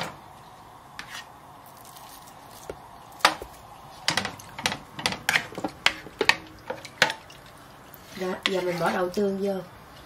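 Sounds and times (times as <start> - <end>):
faint steady background noise: 0.0 - 10.0.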